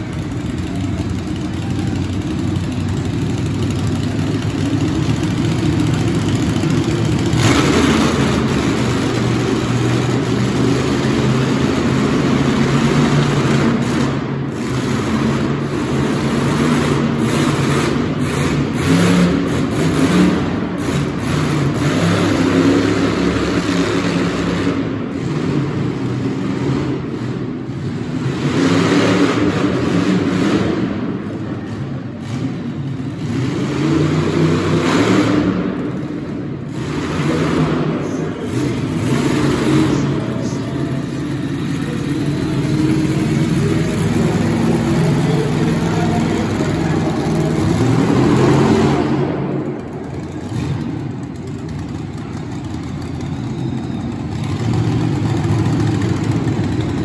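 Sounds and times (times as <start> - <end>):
monster truck engine revving: 0.0 - 57.0.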